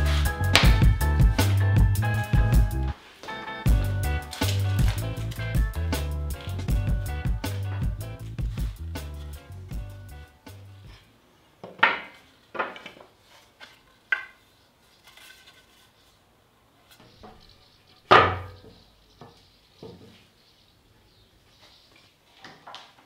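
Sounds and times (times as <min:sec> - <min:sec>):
wooden boards knocking: 0:00.5 - 0:01.0, 0:11.6 - 0:13.1, 0:18.1 - 0:20.1.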